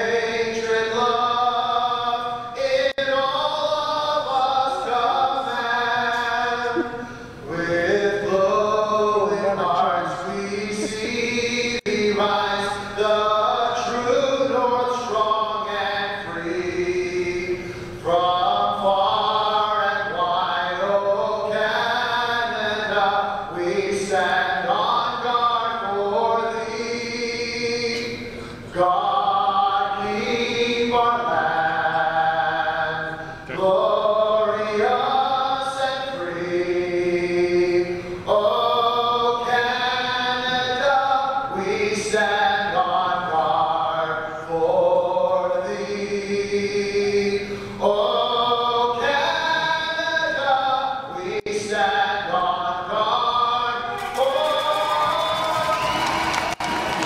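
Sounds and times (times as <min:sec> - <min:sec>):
singing over sound system: 0:00.0 - 0:57.0
crowd cheering: 0:53.9 - 0:57.0.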